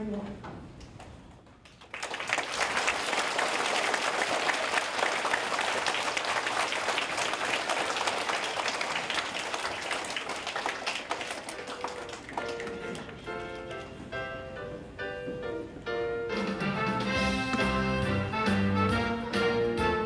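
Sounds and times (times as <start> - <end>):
audience applauding: 1.6 - 13.7.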